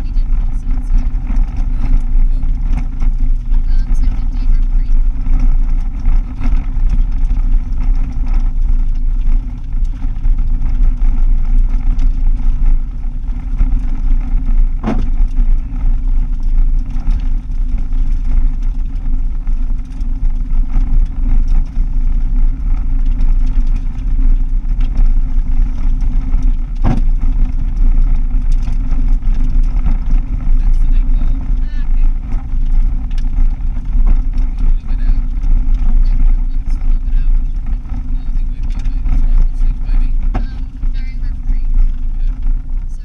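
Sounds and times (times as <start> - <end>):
car rumbling on gravel: 0.0 - 43.0.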